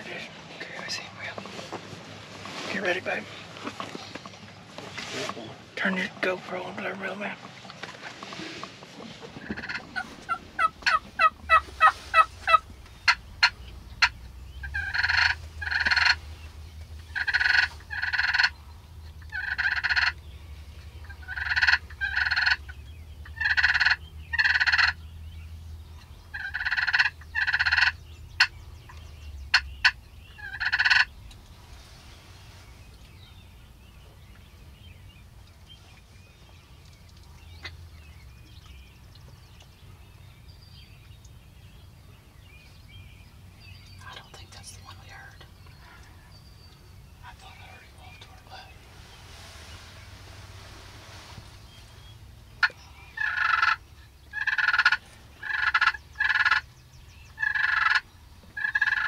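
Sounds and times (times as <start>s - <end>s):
turkey gobbling: 9.3s - 16.3s, 17.0s - 18.6s, 19.2s - 20.2s, 21.0s - 25.0s, 26.3s - 28.6s, 29.5s - 31.1s, 52.6s - 56.7s, 57.4s - 59.0s.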